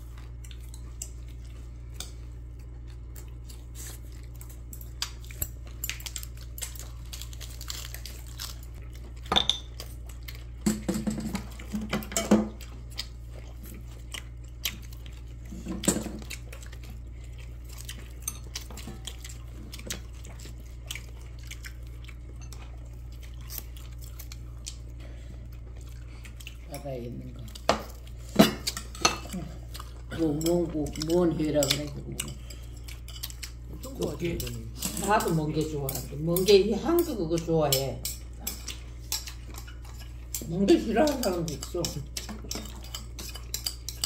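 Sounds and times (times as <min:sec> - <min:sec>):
steady low hum: 0:00.0 - 0:44.0
chopsticks and dishes clattering: 0:10.6 - 0:12.7, 0:27.6 - 0:44.0.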